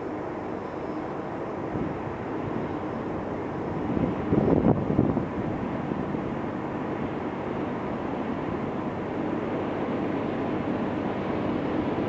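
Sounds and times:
distant diesel train rumble: 0.0s - 12.0s.

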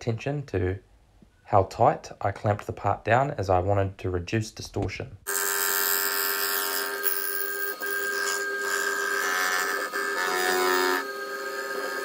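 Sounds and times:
milling machine whining: 5.3s - 12.0s.

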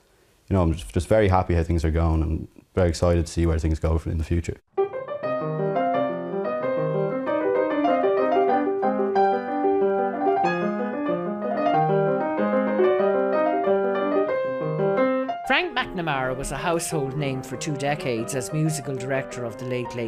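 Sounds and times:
grand piano playing: 4.8s - 20.0s.

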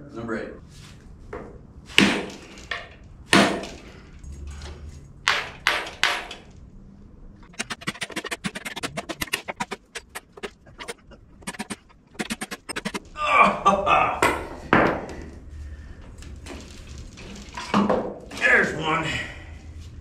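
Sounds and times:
rapid light metallic clicking: 7.5s - 13.0s.

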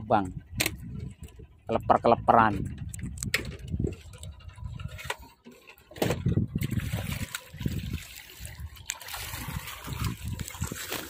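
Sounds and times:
water trickling and splashing: 3.7s - 11.0s.

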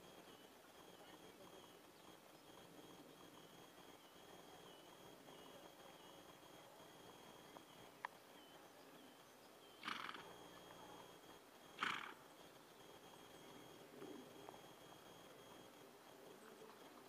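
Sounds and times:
pony snorting: 9.8s - 10.3s, 11.7s - 12.2s.

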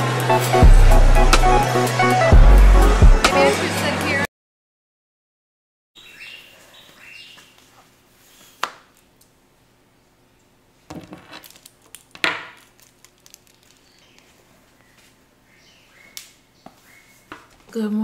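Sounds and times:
faint birds chirping: 6.0s - 8.6s, 13.7s - 17.5s
objects bumping and tapping: 10.9s - 14.3s.

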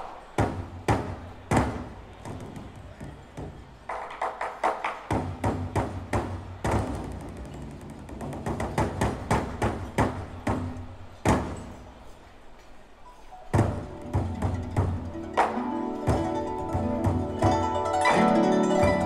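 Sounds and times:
barrel drum beaten with sticks: 0.4s - 11.7s, 13.5s - 18.0s.

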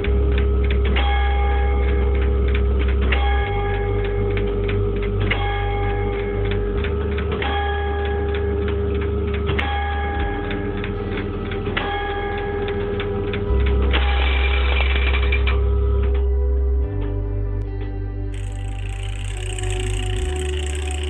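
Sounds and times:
clock mechanism clattering and ticking: 0.0s - 15.6s, 18.4s - 21.0s
clock bell striking: 0.9s - 15.6s.

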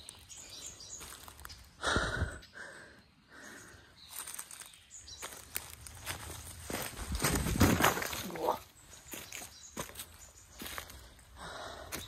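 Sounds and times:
footsteps on dry leaves: 0.0s - 1.8s, 4.0s - 12.0s.

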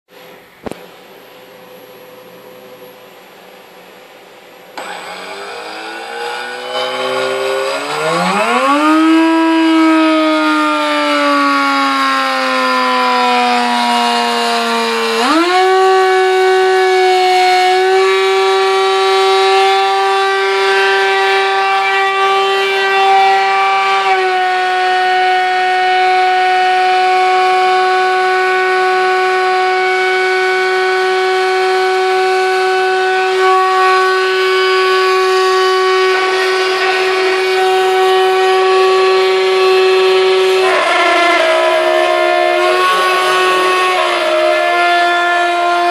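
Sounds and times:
router spindle whine milling metal: 4.8s - 10.5s, 35.2s - 45.9s.

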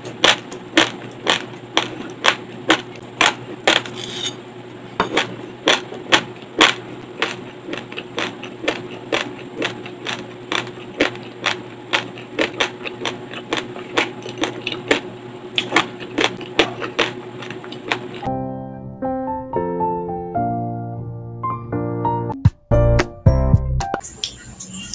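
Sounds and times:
rice crunching between teeth: 0.0s - 4.1s, 5.1s - 18.3s
piano music: 18.3s - 24.1s.

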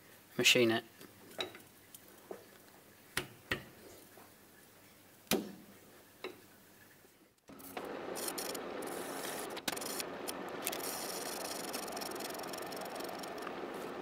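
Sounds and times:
lathe running: 7.5s - 14.0s.

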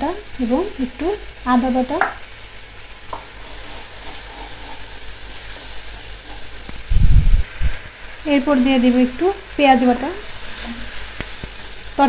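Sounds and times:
spice paste sizzling and bubbling: 0.0s - 12.0s
wooden spatula stirring: 3.2s - 6.8s
dull low thumps: 6.8s - 7.8s.

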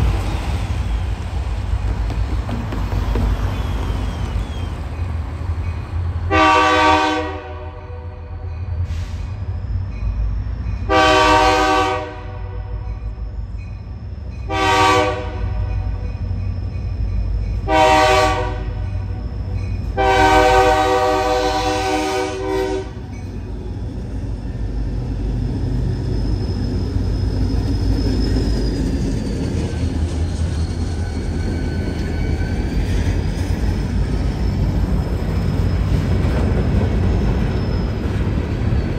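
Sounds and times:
diesel locomotive engines rumbling: 0.0s - 38.9s
locomotive air horn blasts: 6.3s - 8.3s, 10.9s - 12.9s, 14.5s - 15.7s, 17.7s - 18.9s, 20.0s - 23.0s.

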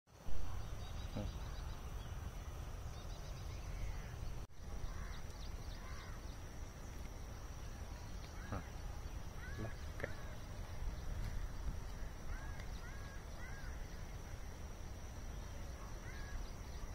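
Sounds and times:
bird chirps: 0.3s - 14.4s, 15.2s - 16.9s
wind on microphone: 7.7s - 16.9s.

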